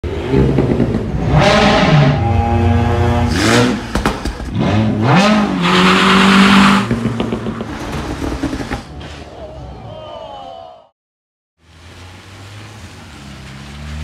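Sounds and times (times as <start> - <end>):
car engine revving: 0.0 - 8.8.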